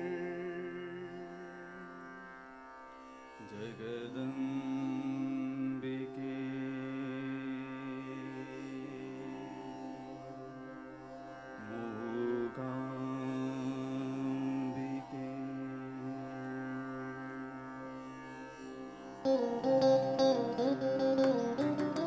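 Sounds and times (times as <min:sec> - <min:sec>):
slow melody: 0:19.2 - 0:22.0.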